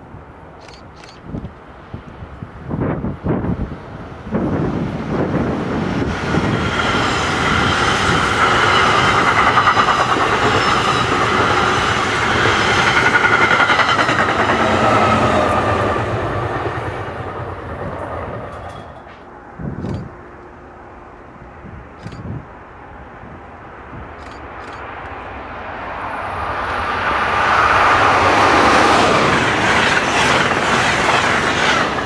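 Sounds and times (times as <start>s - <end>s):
train wheels clickety-clack: 4.3s - 20.1s, 28.3s - 32.0s.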